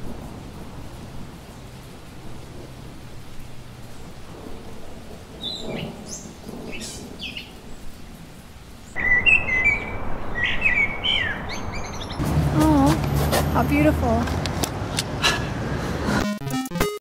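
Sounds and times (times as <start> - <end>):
rain falling steadily: 0.0 - 15.8
high-pitched chirping calls: 9.0 - 12.9.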